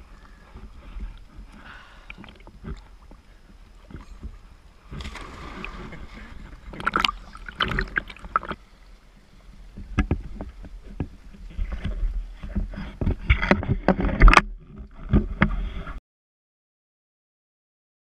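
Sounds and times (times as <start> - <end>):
water splashing against wall: 4.9 - 8.6.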